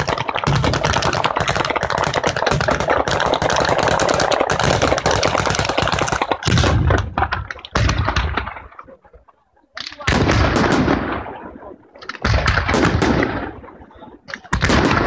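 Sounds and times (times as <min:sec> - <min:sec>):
firecrackers crackling: 0:00.0 - 0:15.0
heavy firecracker bangs: 0:12.2 - 0:13.6.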